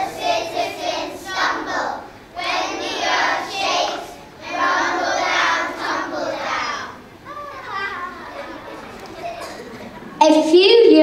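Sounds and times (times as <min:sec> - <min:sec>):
children singing together: 0:00.0 - 0:10.2.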